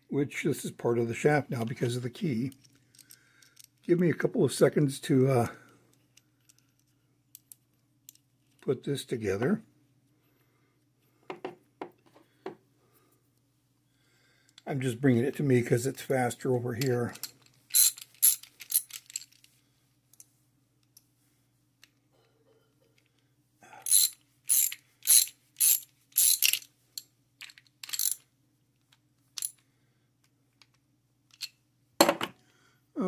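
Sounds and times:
small metal parts clicking: 2.5 - 4.0, 5.9 - 8.6, 16.8 - 19.5, 23.8 - 28.3, 29.4 - 29.6, 30.6 - 31.6.

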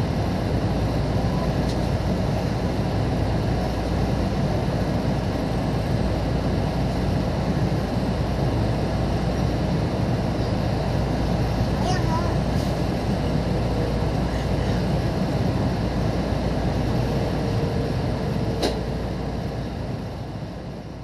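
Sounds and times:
train interior rumble and hum: 0.0 - 21.0.

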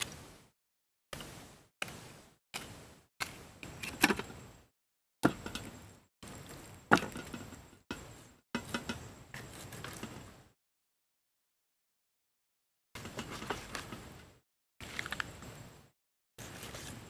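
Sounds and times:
items handled on metal tray: 5.2 - 10.3, 13.0 - 14.2.

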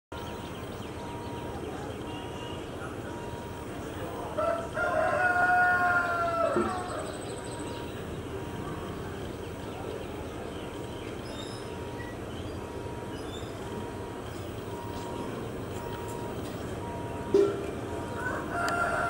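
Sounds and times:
steady background noise: 0.1 - 19.0
rooster crowing: 4.4 - 7.2, 18.1 - 19.0
faint high bird chirps: 6.0 - 16.6.

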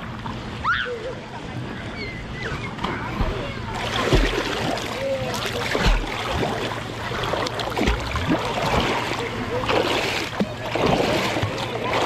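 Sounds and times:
sea water splashing: 3.0 - 12.0.

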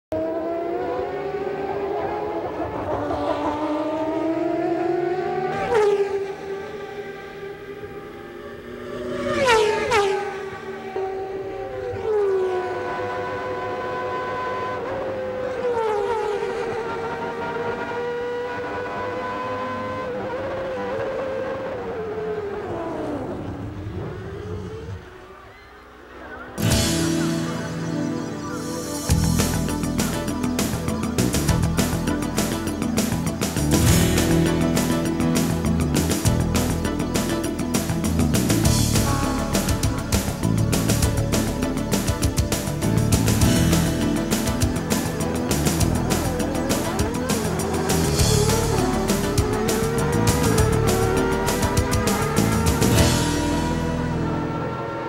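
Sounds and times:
racing car engines at high revs: 0.1 - 27.4, 29.9 - 55.0
loud burst of music: 26.6 - 54.8.

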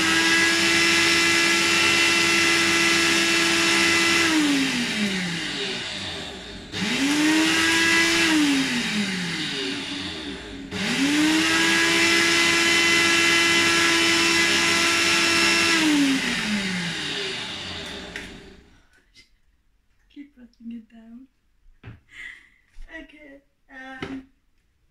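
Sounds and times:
electric blender running: 0.0 - 18.8.

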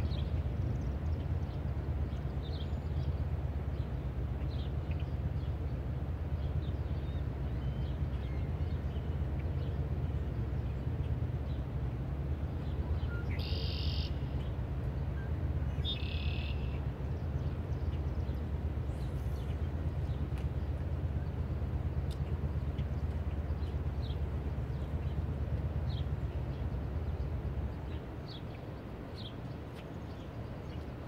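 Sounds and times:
steady low hum: 0.0 - 31.0
faint bird chirps: 13.0 - 14.3, 15.2 - 16.8.

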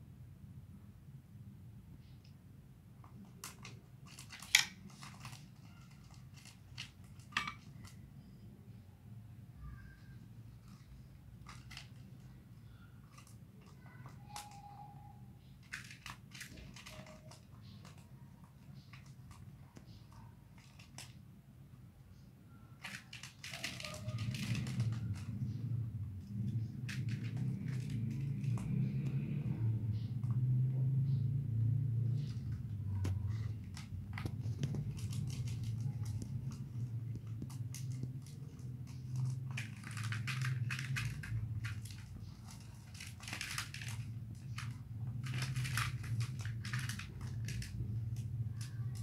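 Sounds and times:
clicks and rustling: 3.0 - 8.0, 10.5 - 21.2, 22.8 - 29.2, 32.0 - 49.0
steady low hum: 24.5 - 49.0
crackling: 31.0 - 49.0.

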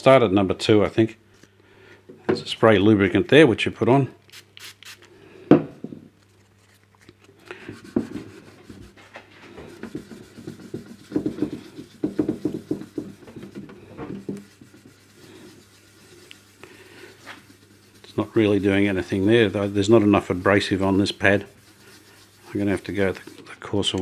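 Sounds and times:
sanding pad rubbing plastic: 9.6 - 23.9.

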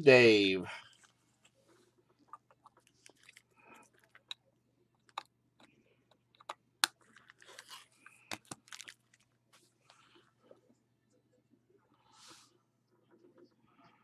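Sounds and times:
packaging rustling: 7.0 - 9.3.

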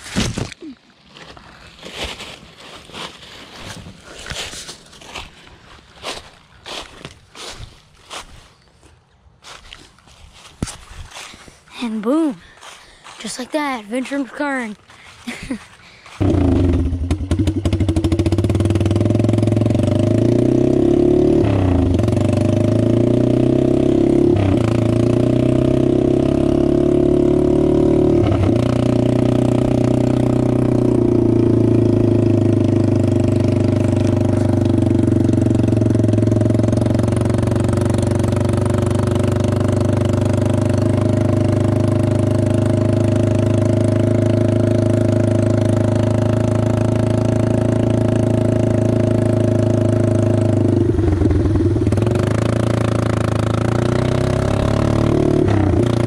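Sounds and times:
atv engine running: 12.0 - 56.0.

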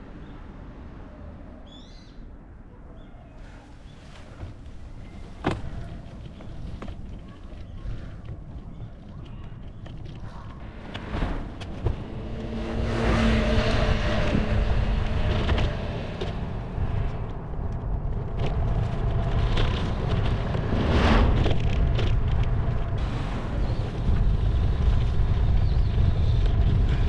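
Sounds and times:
wind rumble on microphone: 0.0 - 27.0
cars passing: 3.4 - 8.5, 10.0 - 25.4.

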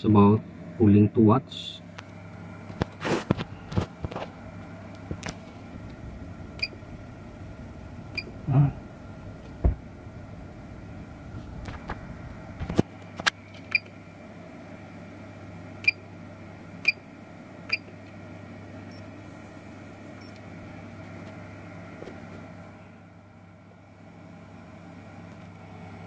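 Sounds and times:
steady low hum: 0.0 - 26.0
short electronic beeps: 18.9 - 20.4.

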